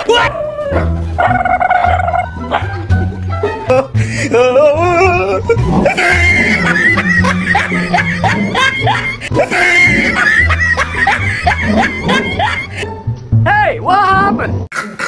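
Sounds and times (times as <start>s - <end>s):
laughter-like chirps: 5.9s - 12.8s.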